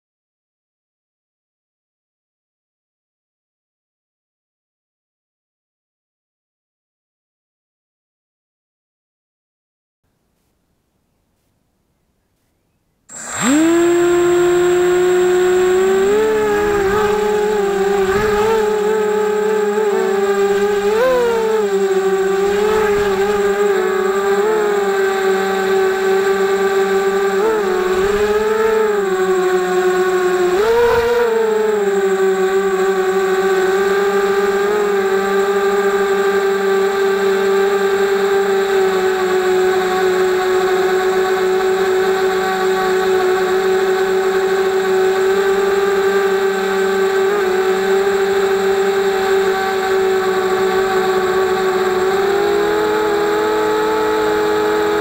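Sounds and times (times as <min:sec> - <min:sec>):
drone motors whining: 0:13.1 - 0:55.0.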